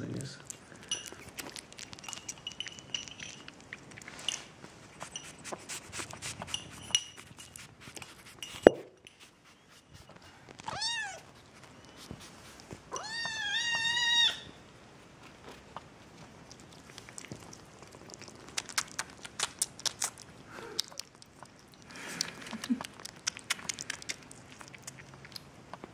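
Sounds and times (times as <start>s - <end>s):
kitten eating wet food: 0.0s - 25.9s
kitten meowing: 13.0s - 14.6s.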